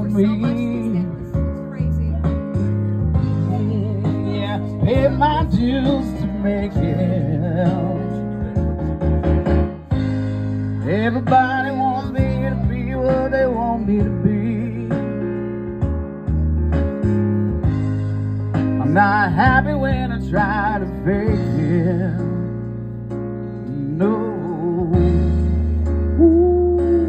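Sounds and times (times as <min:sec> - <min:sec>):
man singing through speaker: 0:00.0 - 0:01.6, 0:02.2 - 0:08.8, 0:10.8 - 0:15.4, 0:18.8 - 0:22.6, 0:23.6 - 0:25.4
keyboard accompaniment: 0:00.0 - 0:27.0.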